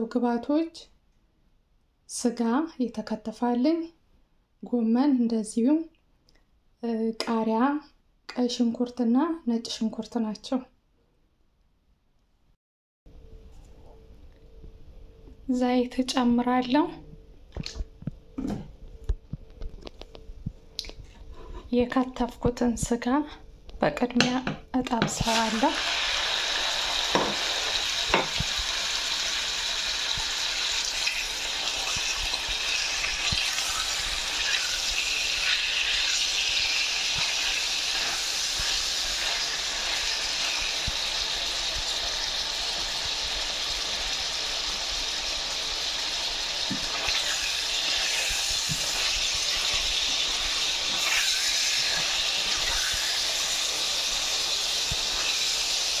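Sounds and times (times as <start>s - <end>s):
meat sizzling in oil: 25.0s - 56.0s.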